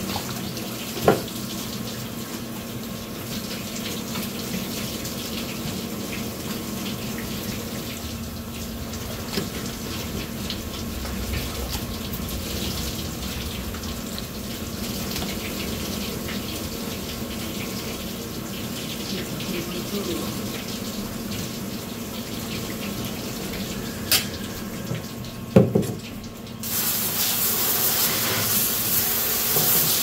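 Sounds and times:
steady low hum: 7.4s - 17.4s
water spattering on fish: 25.9s - 30.0s.

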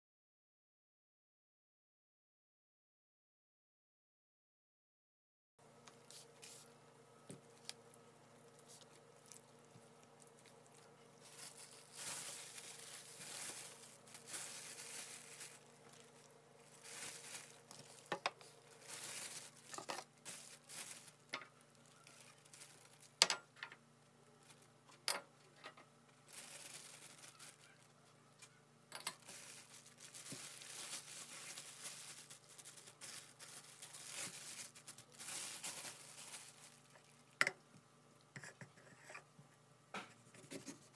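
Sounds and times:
faint steady hum: 5.6s - 40.9s
plastic bag rustling and crinkling: 5.9s - 23.5s, 24.2s - 24.8s, 25.6s - 37.4s.

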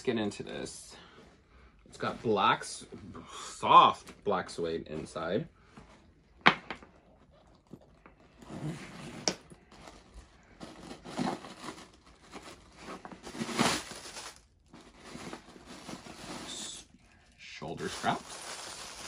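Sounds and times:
plastic packaging crinkling: 9.6s - 16.7s, 17.6s - 19.0s.

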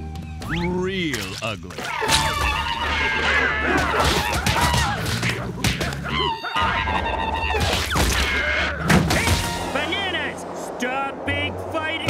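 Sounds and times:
wavering cartoon cries: 1.9s - 8.9s
cartoon whacks and thuds: 3.8s - 6.1s, 8.9s - 9.6s.

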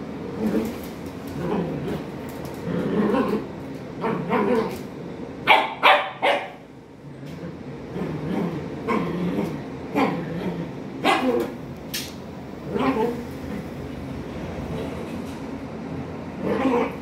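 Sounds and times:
dog growling: 0.4s - 4.8s, 7.0s - 11.6s, 12.6s - 13.8s, 16.4s - 17.0s
dog barking sharply: 5.5s - 6.6s.

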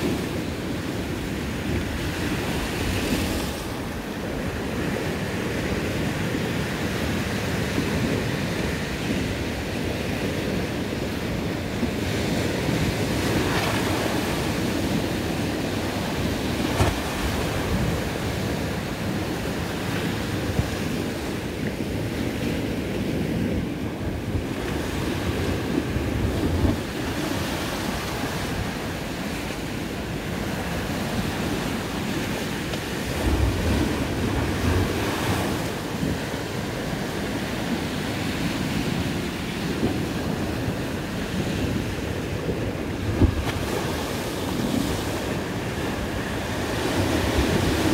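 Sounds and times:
waves washing up slipway: 0.0s - 47.9s
wind on microphone: 0.0s - 47.9s.

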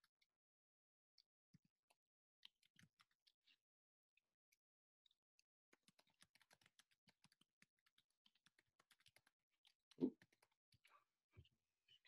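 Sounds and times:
typing on computer keyboard: 5.7s - 10.9s.

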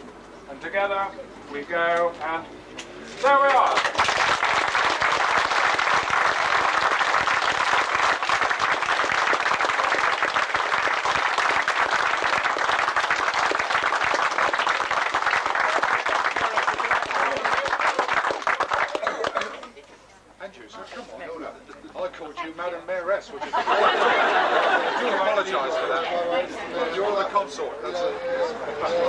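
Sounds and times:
crowd applauding: 3.4s - 19.7s.

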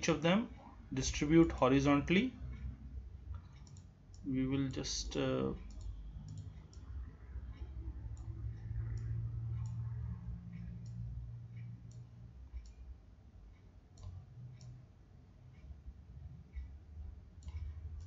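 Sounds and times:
low steady hum: 0.0s - 18.0s
computer mouse clicking: 3.3s - 4.8s, 5.6s - 12.8s, 13.5s - 14.8s, 17.4s - 18.0s.

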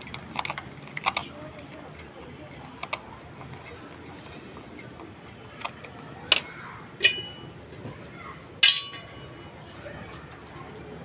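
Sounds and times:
dishes clinking: 1.8s - 7.9s, 8.6s - 9.3s.

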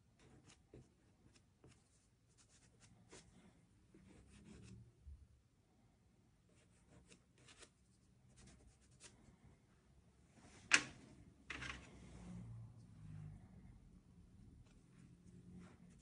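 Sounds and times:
pastel stick scratching on paper: 0.2s - 3.3s, 3.9s - 4.8s, 6.5s - 9.1s.

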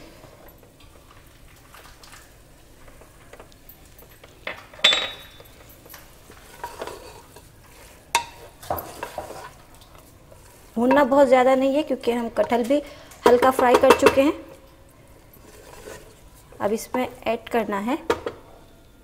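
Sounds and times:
wooden spatula scraping pan: 6.2s - 9.7s, 10.3s - 11.2s, 15.4s - 17.1s.

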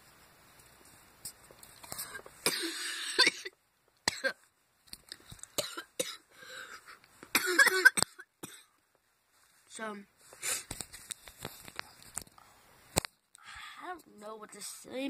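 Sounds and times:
person coughing: 2.4s - 3.5s, 7.4s - 8.7s.

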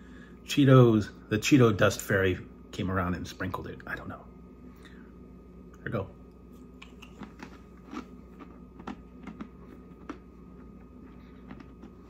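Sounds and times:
crisp snack crunching: 6.8s - 12.0s.

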